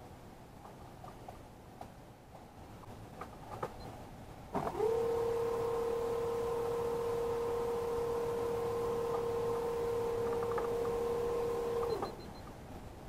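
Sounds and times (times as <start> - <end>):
electric motor whining: 4.6 - 12.2.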